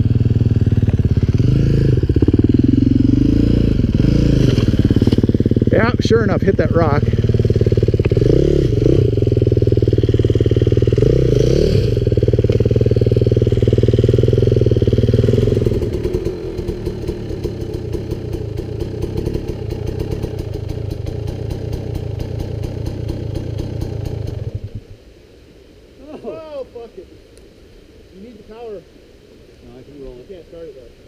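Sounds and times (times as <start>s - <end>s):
distant dirt bike engine puttering: 0.0s - 24.7s
dirt bike engine revving: 0.0s - 24.8s.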